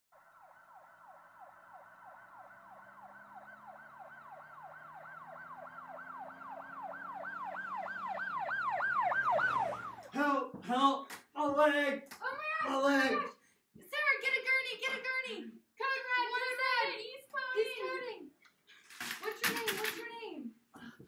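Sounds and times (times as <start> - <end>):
emergency siren yelping: 0.2 - 10.2.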